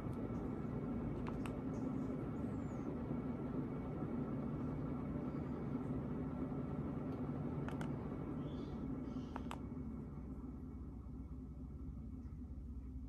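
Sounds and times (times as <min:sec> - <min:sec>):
ceiling fan motor humming: 0:00.0 - 0:13.0
faint clicks: 0:09.3 - 0:09.6.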